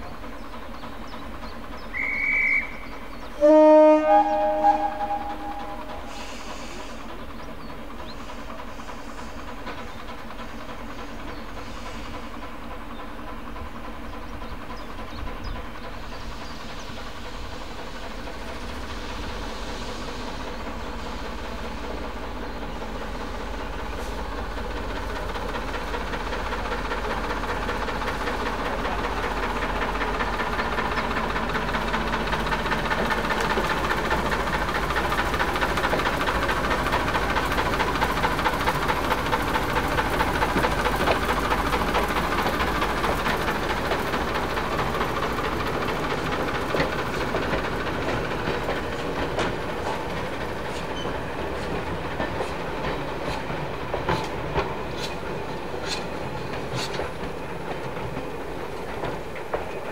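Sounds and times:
diesel locomotive engine: 0.0s - 59.9s
wheels clicking over rail joints: 20.6s - 59.9s.

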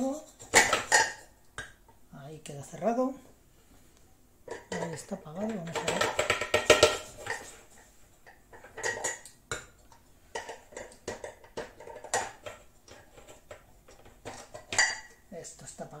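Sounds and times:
metal cookware clinking and knocking: 0.3s - 1.3s, 4.5s - 7.5s, 8.3s - 15.2s.

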